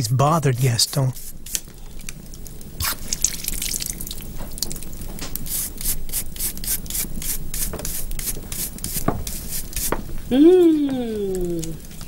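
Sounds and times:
scratchy rubbing strokes: 0.6s - 1.6s, 5.4s - 10.0s.

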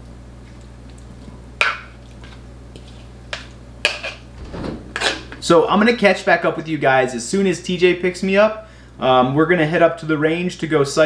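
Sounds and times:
spoon scraping wet food: 0.4s - 4.3s.

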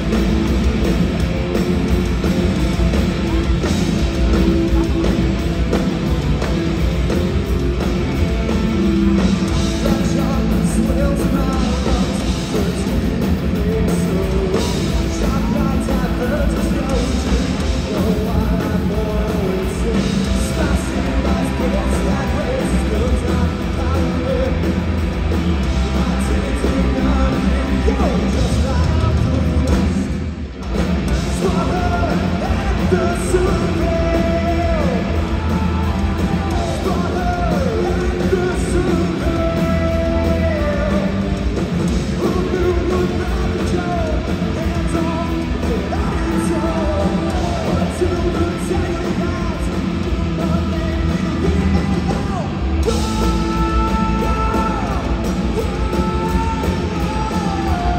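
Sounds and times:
punk rock band playing: 0.0s - 57.9s
sung and shouted vocals: 31.2s - 41.4s, 42.2s - 57.9s.

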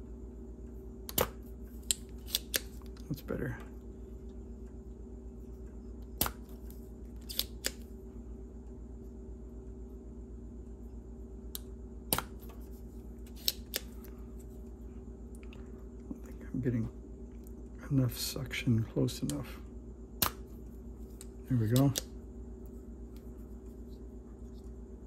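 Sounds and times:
steady low hum: 0.0s - 25.0s
solder sucker snapping: 1.1s - 2.7s, 20.2s - 20.5s.

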